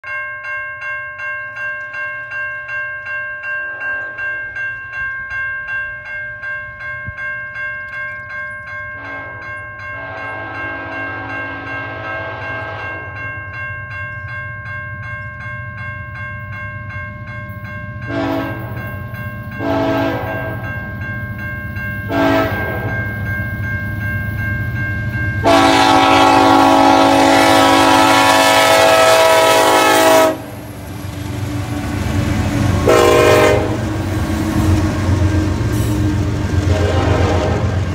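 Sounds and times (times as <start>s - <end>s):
railroad crossing bell ringing: 0.0s - 37.9s
locomotive horn blasts: 9.0s - 9.4s, 10.0s - 13.2s, 18.1s - 18.8s, 19.6s - 20.7s, 22.1s - 23.0s, 25.4s - 30.6s, 32.8s - 34.0s, 36.6s - 37.9s
locomotive rumble: 24.6s - 37.9s.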